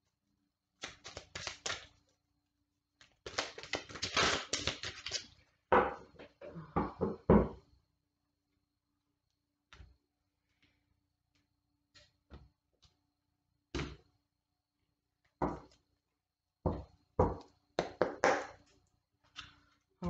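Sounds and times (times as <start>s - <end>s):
cards being shuffled: 0.8s - 1.9s, 3.0s - 5.3s.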